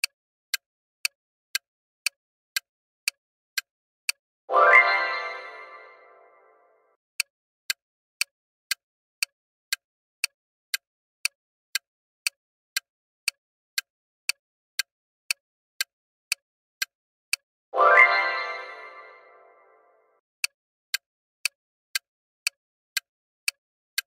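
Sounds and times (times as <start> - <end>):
clock ticking: 0.0 - 6.5, 7.2 - 19.8, 20.9 - 24.0
answer-reveal chime: 4.5 - 6.7, 17.8 - 19.9.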